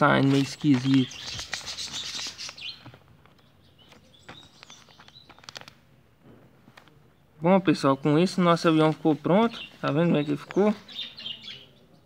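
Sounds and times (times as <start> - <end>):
paper rustling and crinkling: 0.0 - 5.8
faint bird chirps: 0.8 - 5.6, 9.4 - 12.0.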